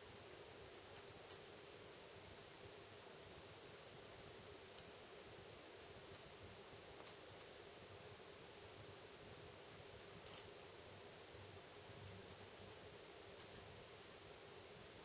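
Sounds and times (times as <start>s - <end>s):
wind bell chiming: 13.4s - 14.6s.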